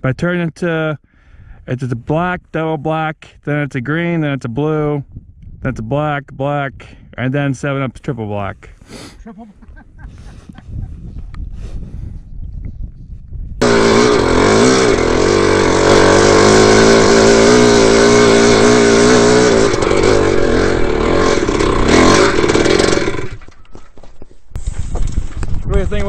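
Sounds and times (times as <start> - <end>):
dirt bike engine revving: 13.6 - 23.5.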